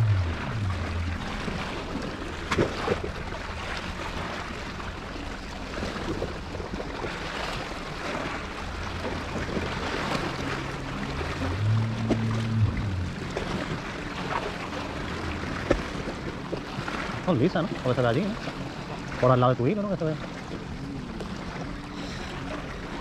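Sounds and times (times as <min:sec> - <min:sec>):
sea waves washing against rocks: 0:00.0 - 0:23.0
wind on microphone: 0:11.2 - 0:13.9.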